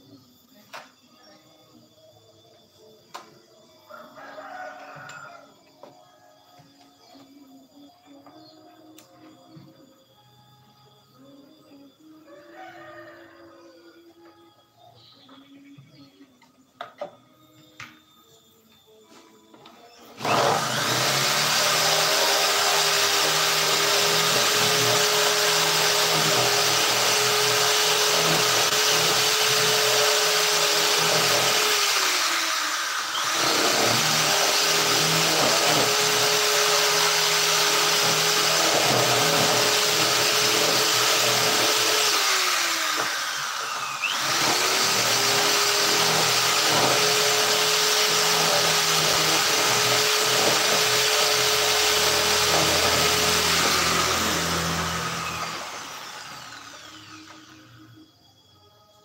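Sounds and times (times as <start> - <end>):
power tool motor whine: 16.4 - 58.5.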